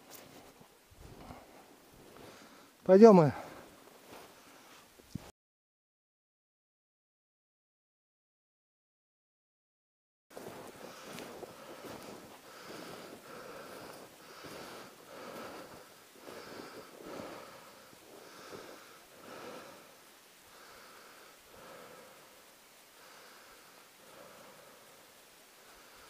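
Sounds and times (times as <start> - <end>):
footsteps crunching through snow: 0.0 - 2.4, 3.4 - 5.3, 10.3 - 19.6.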